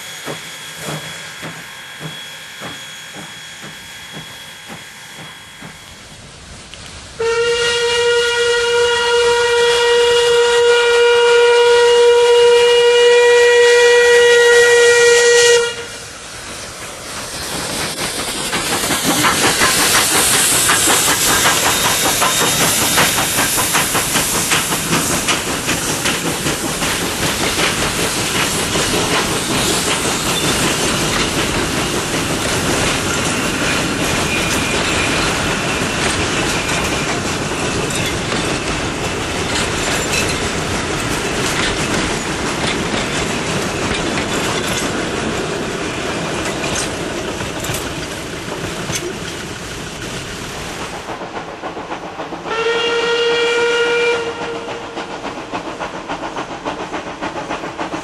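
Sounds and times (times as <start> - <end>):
steam hissing: 0.0 - 10.5, 11.2 - 58.0
steam locomotive exhaust beats: 0.0 - 58.0
steam whistle blast: 7.2 - 16.1, 52.5 - 55.0
wheel clatter on rails: 16.8 - 52.5.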